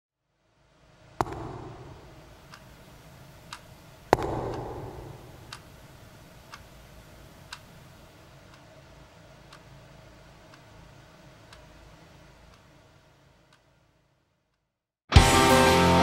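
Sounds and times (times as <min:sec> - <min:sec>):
clock ticking: 0:01.2 - 0:13.8.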